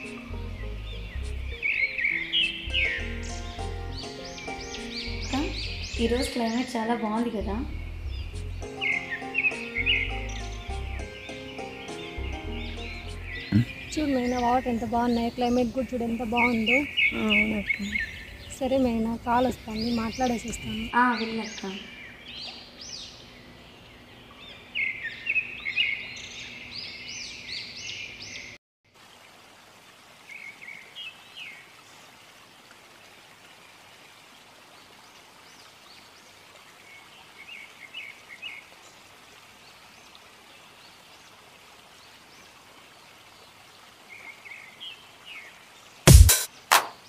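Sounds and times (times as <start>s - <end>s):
birds chirping: 0.0s - 28.6s
steady outdoor hiss: 0.0s - 47.0s
sharp loud music beats: 46.1s - 47.0s.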